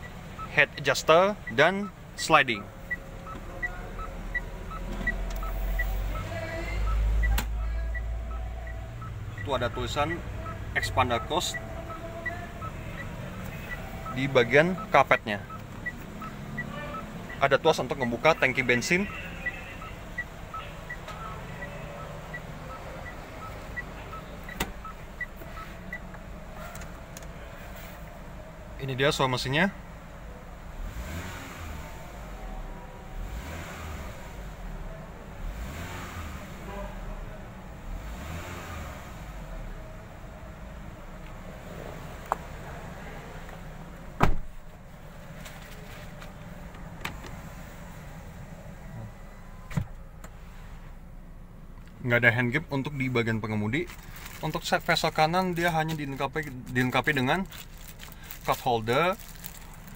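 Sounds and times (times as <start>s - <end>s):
car warning chime beeping: 0.0s - 26.7s
car engine idling: 0.0s - 59.9s.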